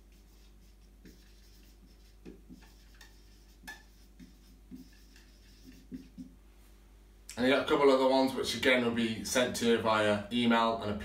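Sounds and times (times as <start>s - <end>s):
marker squeaking on whiteboard: 0.0s - 6.3s.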